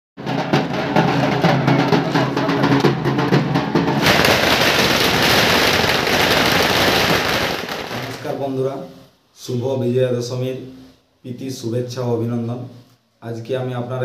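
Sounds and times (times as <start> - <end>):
barrel drums beaten rhythmically: 0.2 - 8.2
firecrackers crackling: 4.0 - 8.6.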